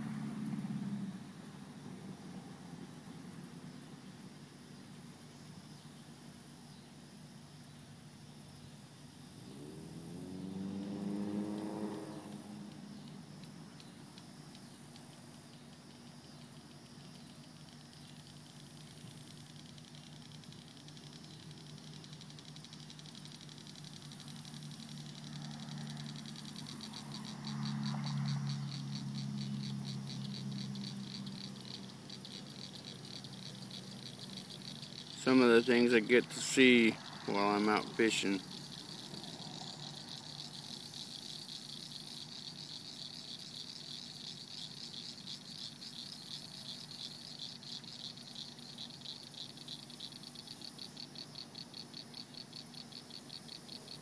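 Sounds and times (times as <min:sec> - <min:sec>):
vehicle engine passing: 0:00.0 - 0:03.4, 0:09.4 - 0:13.6, 0:24.0 - 0:43.0
faint insect chirping: 0:00.0 - 0:54.0
steady low hum: 0:00.0 - 0:54.0.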